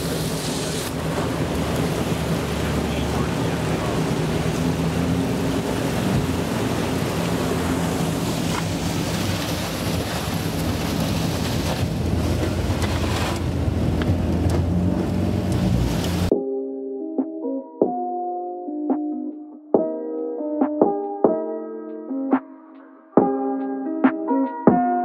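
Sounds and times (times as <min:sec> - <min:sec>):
ice and water rushing along hull: 0:00.0 - 0:16.3
outboard motor running: 0:00.0 - 0:16.3.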